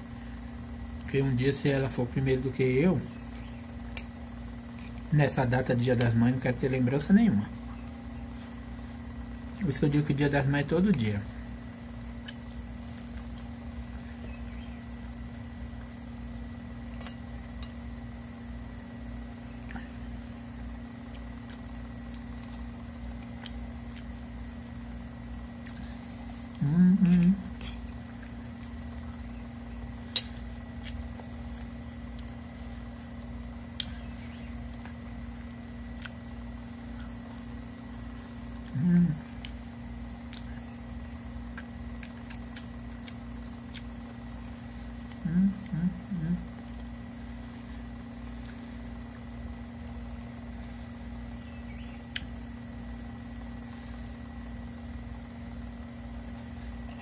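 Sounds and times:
steady low hum: 0:00.0 - 0:57.0
person chewing food: 0:03.3 - 0:05.1, 0:11.9 - 0:18.6, 0:19.2 - 0:51.2, 0:52.0 - 0:55.0.

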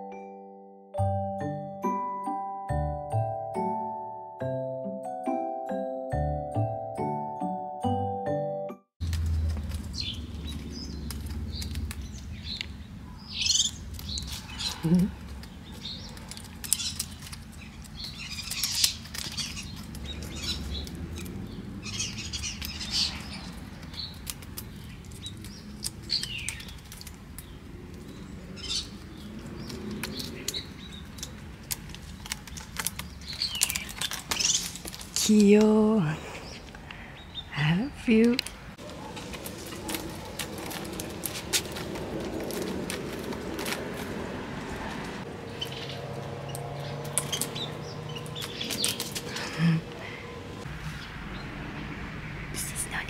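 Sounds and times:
cat claws scratching bark: 0:09.0 - 0:12.8, 0:13.4 - 0:35.6, 0:38.4 - 0:49.6
birds chirping faintly: 0:09.0 - 0:42.4, 0:45.2 - 0:53.0.

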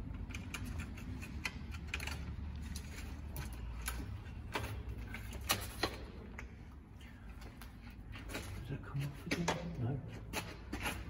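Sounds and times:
bicycle chain clicking and rattling: 0:00.0 - 0:06.2.

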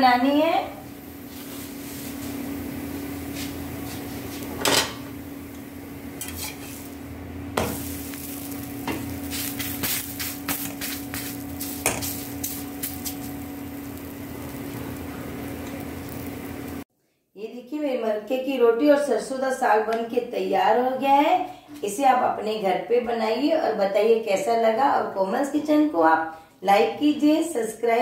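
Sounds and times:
steady low hum: 0:00.0 - 0:16.8
flatbread sizzling on a hot pan: 0:00.6 - 0:16.8
utensils knocking and scraping pan: 0:06.2 - 0:06.9, 0:08.8 - 0:13.1.

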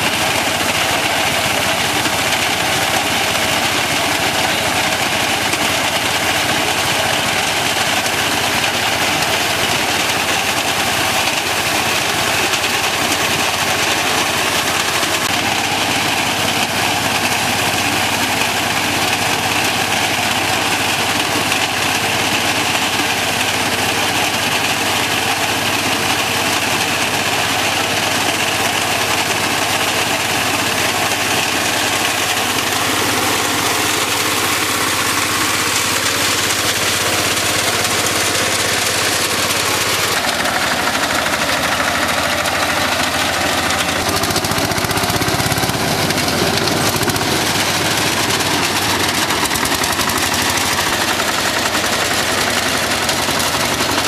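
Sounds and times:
reaper cutting wheat: 0:00.0 - 0:54.0
tractor engine running: 0:00.0 - 0:54.0.

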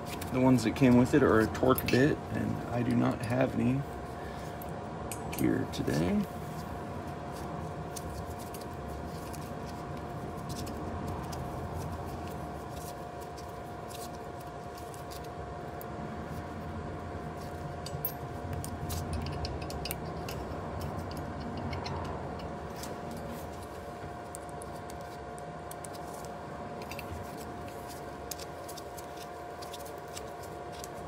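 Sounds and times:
steady background hum: 0:00.0 - 0:31.0
small screws and key clinking: 0:17.8 - 0:23.2.

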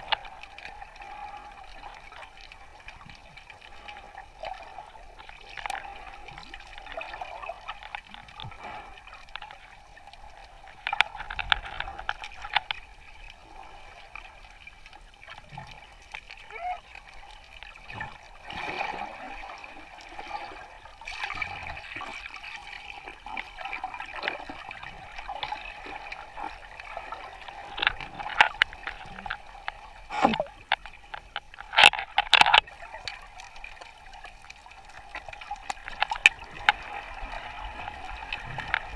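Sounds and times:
water sloshing and gurgling: 0:00.0 - 0:38.9
water splashing: 0:00.0 - 0:38.9.

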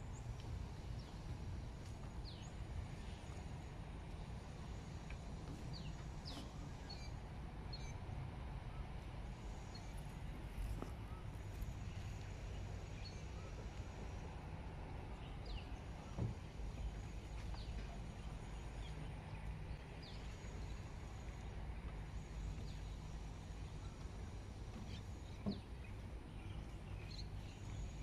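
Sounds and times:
footsteps on wooden boardwalk: 0:00.2 - 0:03.2, 0:05.1 - 0:06.7, 0:15.9 - 0:18.6, 0:21.8 - 0:28.0
birds chirping: 0:15.1 - 0:28.0.

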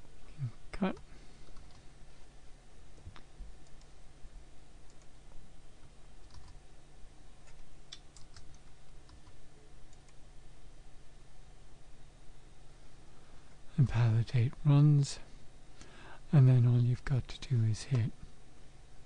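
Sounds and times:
low steady hum: 0:00.0 - 0:19.0
keyboard and mouse clicks: 0:07.4 - 0:10.2.

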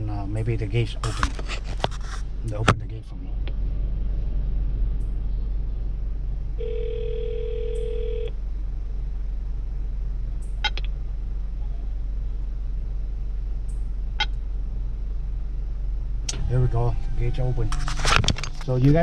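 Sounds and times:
car engine idling hum: 0:00.0 - 0:19.0
intercom telephone ring tone: 0:06.6 - 0:08.3.

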